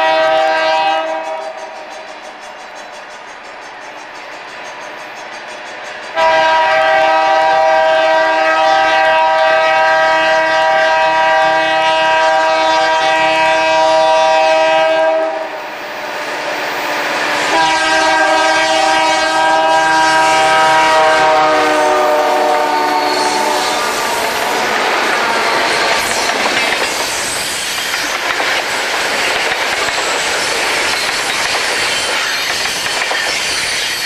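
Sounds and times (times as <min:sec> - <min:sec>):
locomotive horn blasts: 0:00.0 - 0:01.6, 0:06.2 - 0:15.6, 0:17.4 - 0:24.6.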